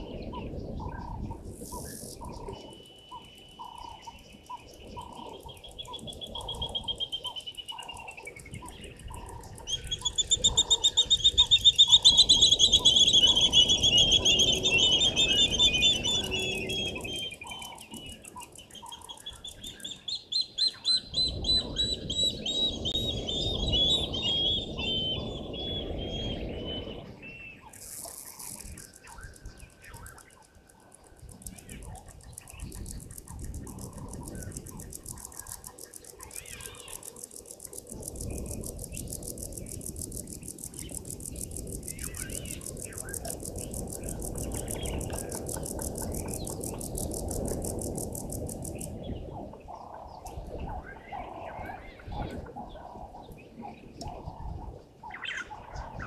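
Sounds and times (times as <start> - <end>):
birds trilling: 0.0 - 33.1.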